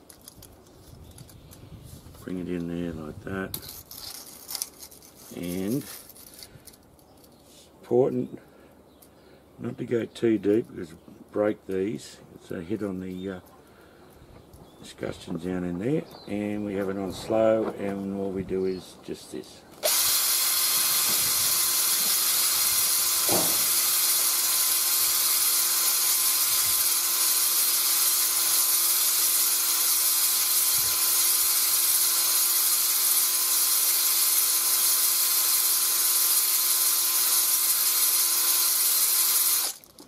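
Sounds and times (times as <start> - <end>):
electric drill motor whine: 19.8 - 39.9.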